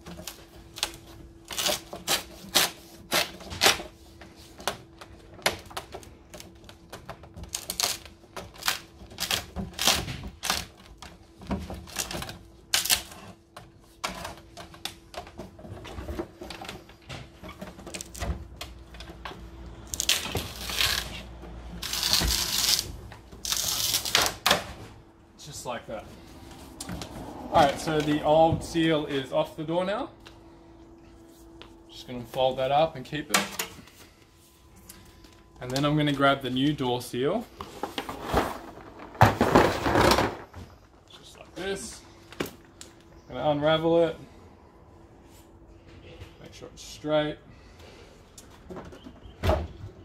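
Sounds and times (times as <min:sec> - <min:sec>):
faint steady hum: 0:00.0 - 0:50.0
scraping rustles: 0:36.4 - 0:41.0.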